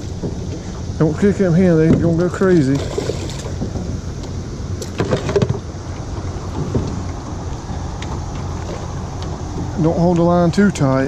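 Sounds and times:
moving water rumble: 0.0 - 11.0
wind: 0.0 - 11.0
fish splashing into water: 2.7 - 3.7.

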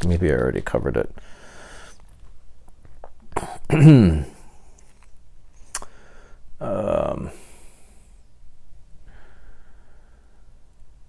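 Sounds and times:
man breathing out: 5.8 - 6.4, 9.0 - 10.6.

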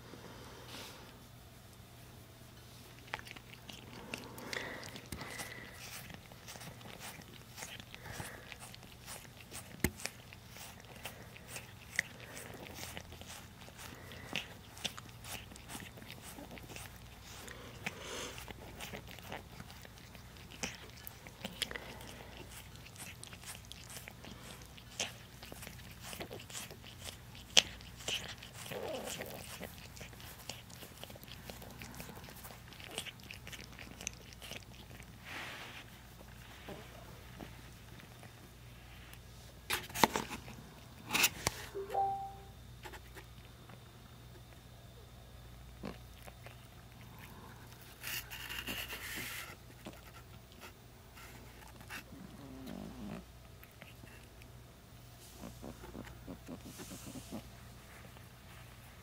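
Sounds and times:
fingers scratching cat fur: 4.9 - 36.0, 55.4 - 57.5.

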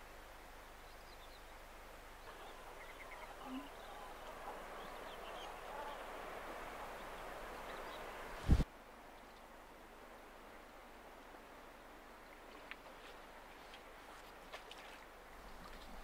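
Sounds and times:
water: 0.0 - 16.0
wind: 0.0 - 16.0
birds calling faintly: 0.6 - 10.0.

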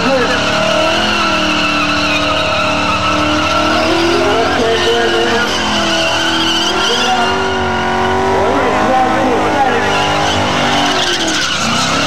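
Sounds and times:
car engine at high revs: 0.0 - 12.0
tyres squealing: 0.0 - 12.0.

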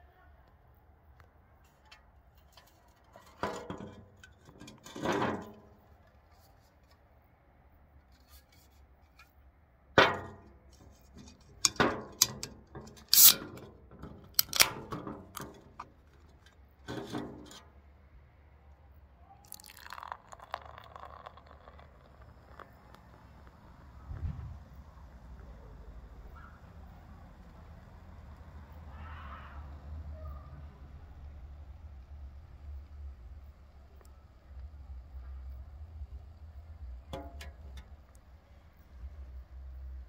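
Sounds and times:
can knocked and handled: 2.5 - 5.8, 10.0 - 17.6, 37.1 - 37.9
can ring-pull clicking: 11.6 - 15.9, 37.2 - 37.9
can snapping open: 11.7 - 13.7, 14.4 - 15.9
beer pouring into glass: 13.1 - 13.3, 19.4 - 24.1.

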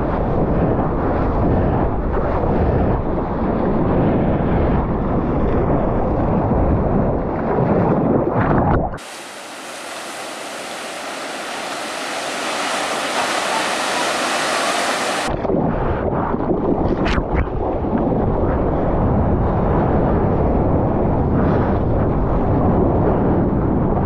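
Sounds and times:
water sloshing and rushing: 7.4 - 15.8
waves breaking into whitewash: 9.0 - 15.4.

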